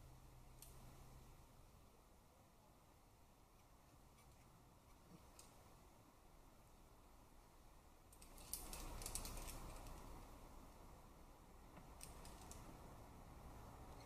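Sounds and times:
climbing gear clicking: 8.1 - 10.1.

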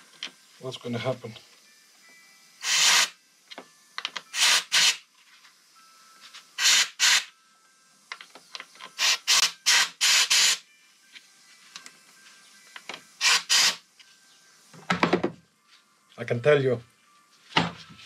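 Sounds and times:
compressed air bursts hissing: 2.6 - 3.2, 4.3 - 5.0, 6.6 - 7.3, 9.0 - 10.6, 13.2 - 13.8.

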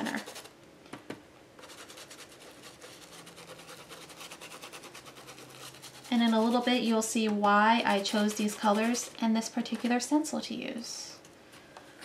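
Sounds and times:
brush scrubbing on paper: 0.0 - 0.5, 1.6 - 7.1, 7.8 - 9.9.

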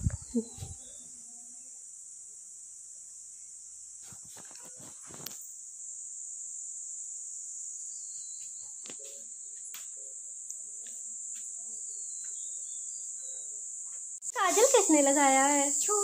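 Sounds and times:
insects shrilling: 3.9 - 16.0.

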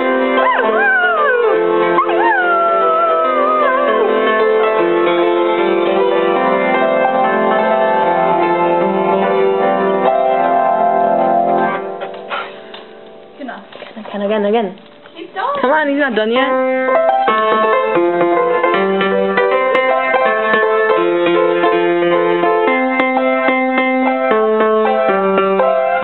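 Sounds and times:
music playing: 0.0 - 13.4
dog howling: 0.4 - 5.0.

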